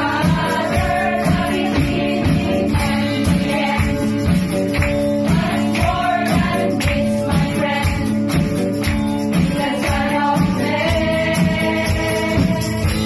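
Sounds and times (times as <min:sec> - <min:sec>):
guitar-led band with steady beat: 0:00.0 - 0:13.0
woman singing into microphone: 0:09.4 - 0:13.0.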